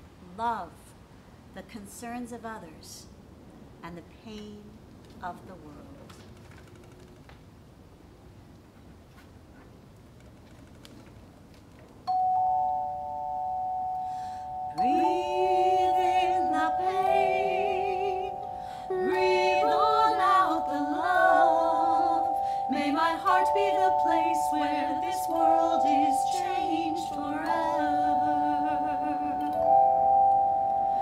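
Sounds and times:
handchimes ringing: 0:12.1 - 0:31.0
women singing with vibrato: 0:14.1 - 0:29.8.

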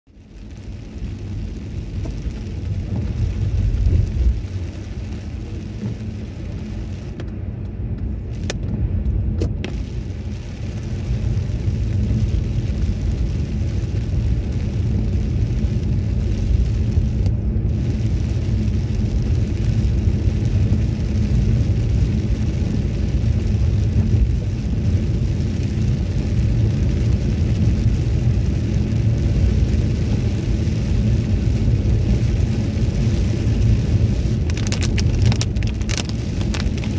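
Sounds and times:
low road rumble: 0:00.1 - 0:36.9
tyre hiss on wet road: 0:09.6 - 0:36.9.

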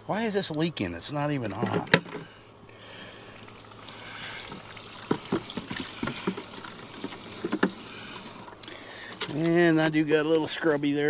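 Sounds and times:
water spraying into plastic bucket: 0:03.3 - 0:08.6
bucket knocks: 0:05.0 - 0:07.8.

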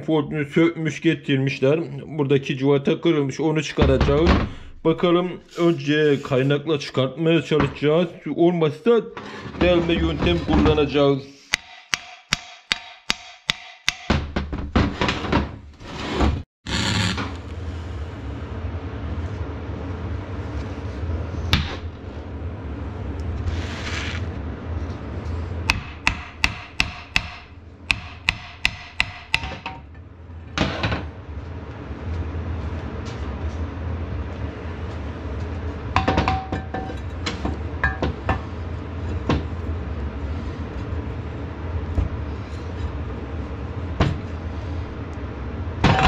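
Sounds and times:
hammer striking cast iron: 0:11.5 - 0:14.4, 0:25.7 - 0:29.9, 0:36.0 - 0:38.4.

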